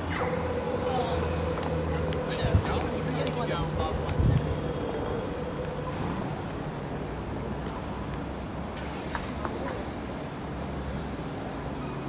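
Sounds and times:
car moving slowly: 0.0 - 12.0
city street traffic: 0.0 - 12.0
footsteps on pavement: 0.2 - 8.5.

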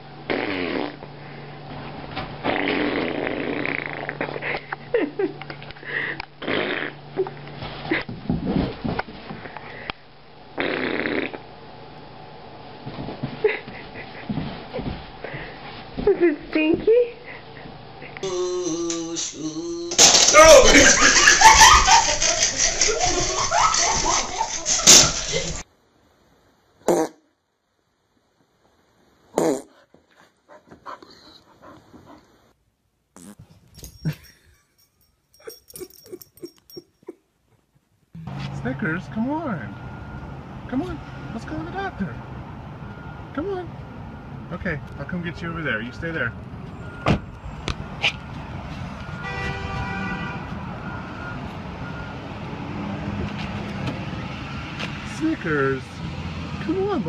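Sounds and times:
dog whining: 35.4 - 37.2.

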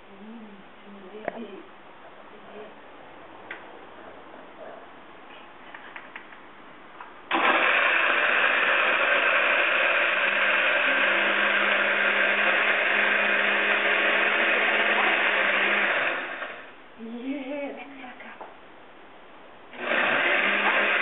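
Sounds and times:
jug blender running: 7.3 - 16.7, 19.7 - 21.0.

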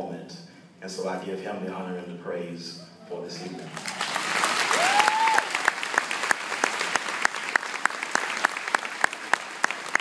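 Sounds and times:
crowd cheering: 3.4 - 10.0
audience applauding: 3.6 - 10.0
close loud hand claps: 3.8 - 10.0.

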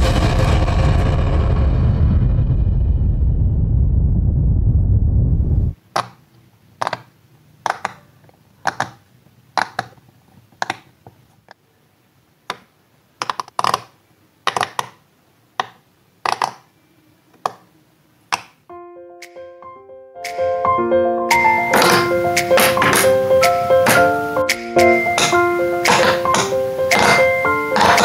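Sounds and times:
loud low rumble: 0.0 - 5.8
fidget toy bubbles popping: 25.2 - 28.0.

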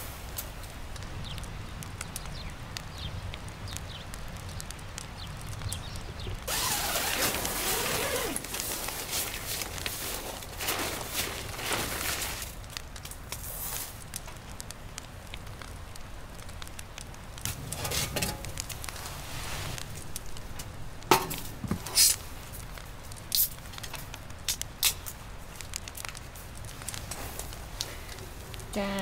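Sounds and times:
wood fire crackling: 0.0 - 29.0
metal pan scraping: 17.7 - 18.5.

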